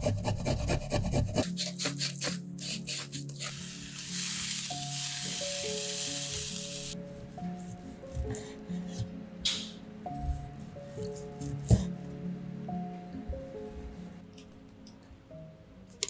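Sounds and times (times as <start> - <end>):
soft background music: 0.1 - 16.0
mushrooms sizzling in oil: 3.6 - 7.0.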